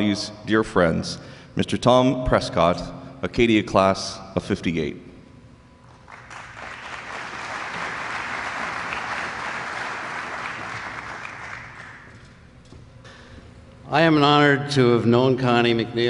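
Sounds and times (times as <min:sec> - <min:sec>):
audience applauding: 0:06.0 - 0:12.2.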